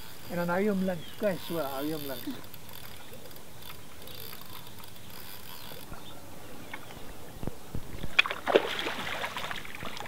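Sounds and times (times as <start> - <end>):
fishing reel ticking: 0.0 - 6.1
fish splashing: 8.1 - 10.0.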